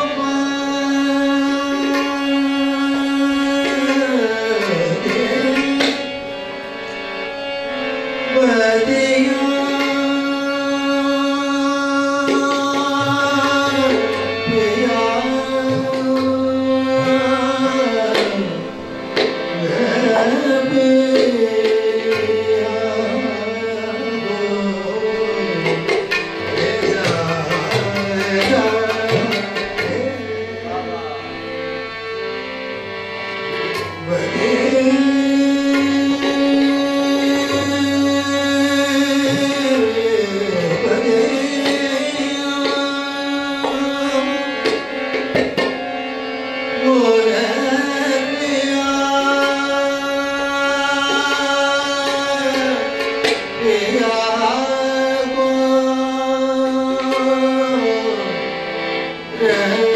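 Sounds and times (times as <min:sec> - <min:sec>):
man singing long notes: 0:00.0 - 0:07.0, 0:08.2 - 0:31.9, 0:33.8 - 0:59.9
harmonium: 0:00.0 - 0:59.9
tabla strokes: 0:00.2 - 0:07.3, 0:25.1 - 0:30.8.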